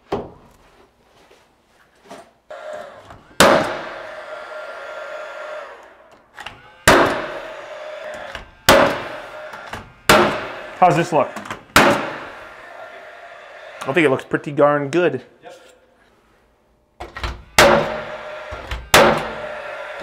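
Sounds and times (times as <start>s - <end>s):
nail gun shots into wood: 3.4s - 3.9s, 6.4s - 7.4s, 8.3s - 9.1s, 9.7s - 10.5s, 11.4s - 12.2s, 17.6s - 18.1s, 18.7s - 19.4s.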